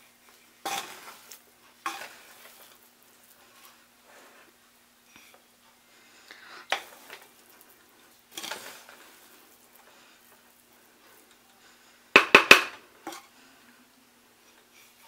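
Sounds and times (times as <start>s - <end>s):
spoon scraping rice in pot: 0.4s - 4.6s, 6.6s - 11.8s
spoon knocking metal pot: 12.2s - 13.2s.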